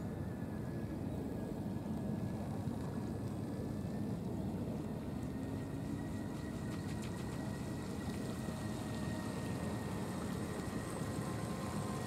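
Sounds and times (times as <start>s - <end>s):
electric motor whine: 3.9s - 12.0s.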